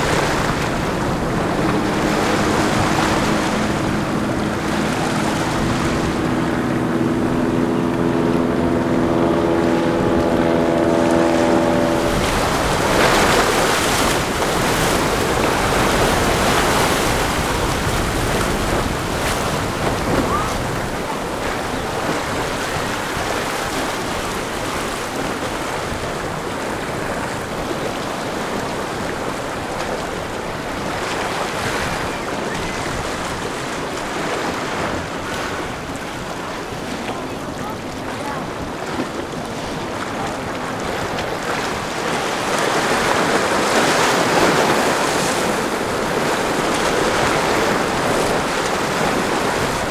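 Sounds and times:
outboard motor humming: 0.0s - 49.9s
waves crashing against hull: 0.0s - 49.9s
wind on microphone: 0.0s - 49.9s.

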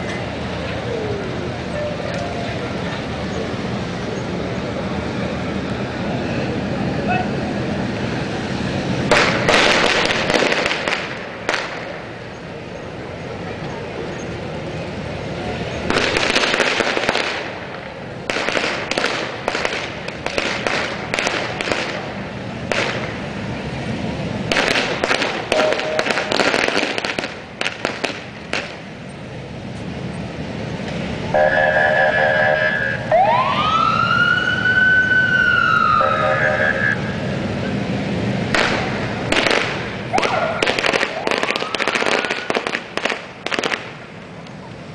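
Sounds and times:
firecrackers crackling: 0.0s - 33.1s, 35.2s - 44.9s
firecrackers bangs and pops: 9.0s - 12.1s, 15.9s - 23.4s, 24.4s - 28.9s, 38.5s - 44.1s.

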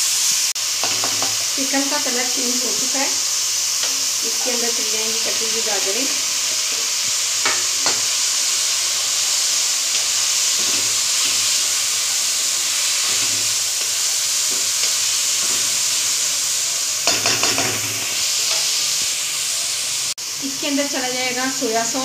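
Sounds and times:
food sizzling in a wok: 0.0s - 22.0s
spatula scraping a pan: 8.8s - 16.4s.

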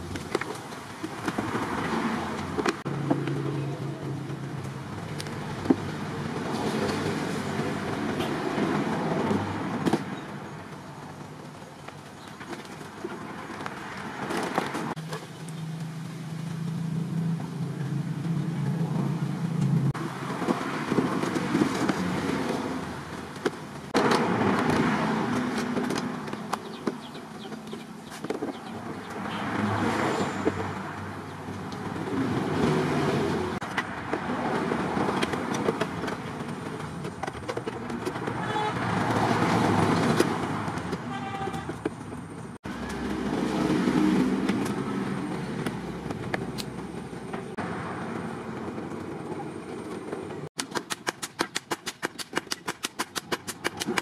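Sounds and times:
road traffic passing: 0.0s - 54.0s
car horn toot: 38.4s - 38.9s, 41.0s - 41.8s.

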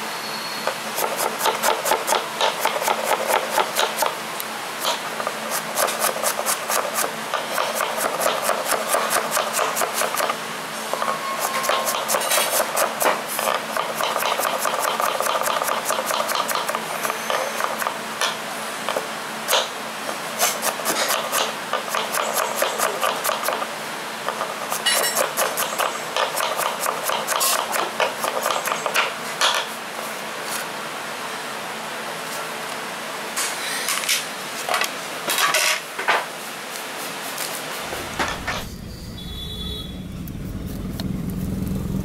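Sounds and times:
knife chopping on wooden board: 4.8s - 10.4s.

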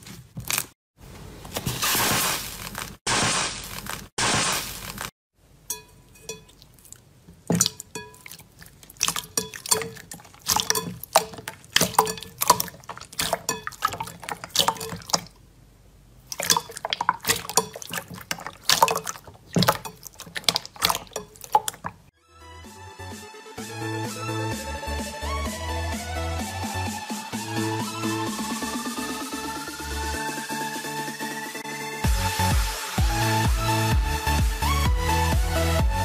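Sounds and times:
slime squelching and clicking: 6.1s - 15.4s, 16.3s - 22.1s.

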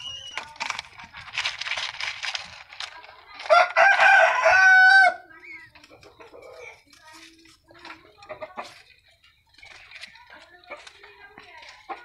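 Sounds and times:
dove wings fluttering: 0.0s - 4.4s.

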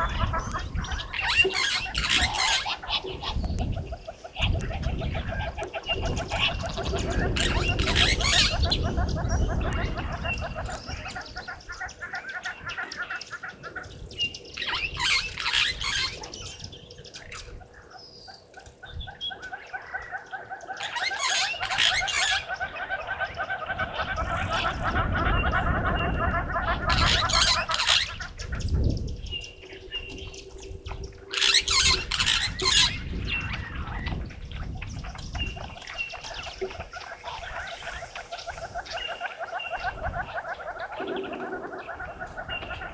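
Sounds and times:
birds trilling: 0.0s - 42.9s
shrill bird chattering: 31.3s - 33.0s.

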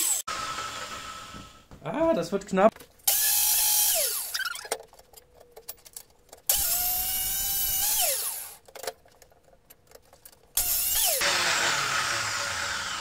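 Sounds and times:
chop saw cutting steel: 0.0s - 1.6s, 3.1s - 4.6s, 6.5s - 8.6s, 10.6s - 13.0s
small clicks of saw: 3.1s - 4.8s, 10.6s - 13.0s.

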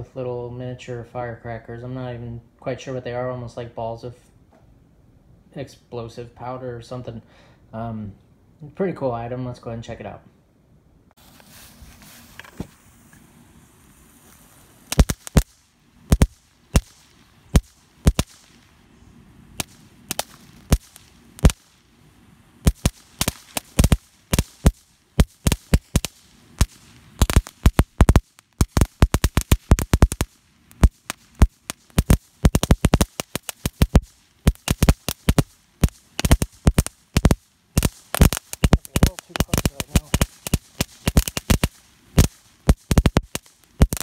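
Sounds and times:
firework burning: 11.2s - 44.0s
firecracker cracks: 12.2s - 18.8s, 19.5s - 21.9s, 22.6s - 44.0s.

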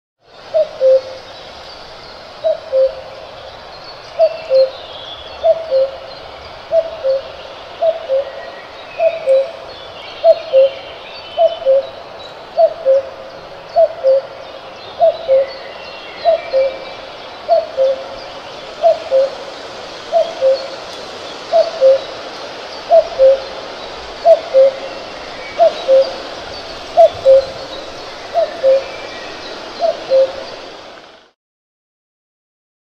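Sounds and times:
cuckoo calling: 0.5s - 1.3s, 2.4s - 3.2s, 4.2s - 4.8s, 5.4s - 6.1s, 6.7s - 9.6s, 10.2s - 12.0s, 12.6s - 31.1s.

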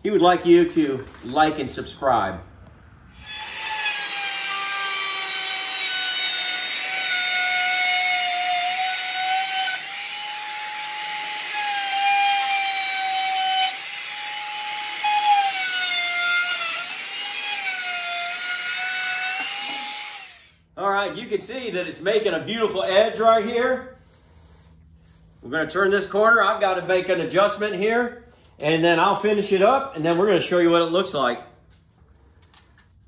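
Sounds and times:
router motor whine: 3.2s - 20.6s.

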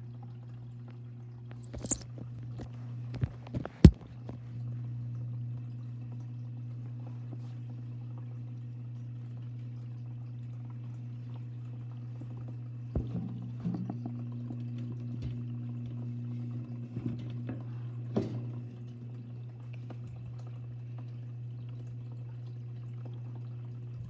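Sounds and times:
low hum: 1.4s - 6.2s.

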